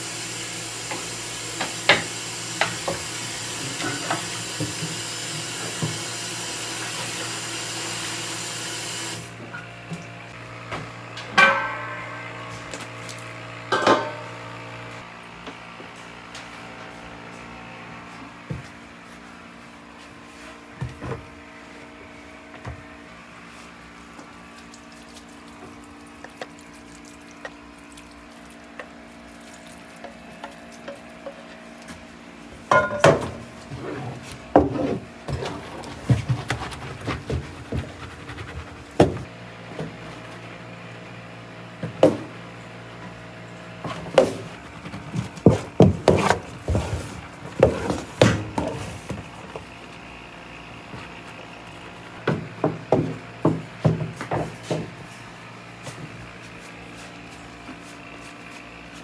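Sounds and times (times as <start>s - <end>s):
wooden paddle turning rice: 33.7s - 40.0s, 43.9s - 49.8s.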